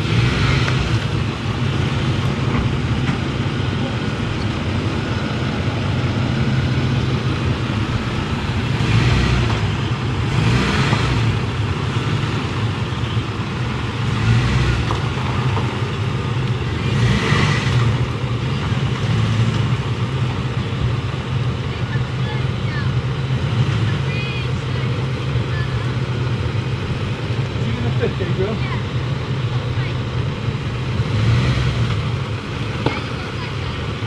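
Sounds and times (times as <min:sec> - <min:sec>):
pickup truck engine rumbling: 0:00.0 - 0:34.0
rushing noise: 0:00.0 - 0:34.0.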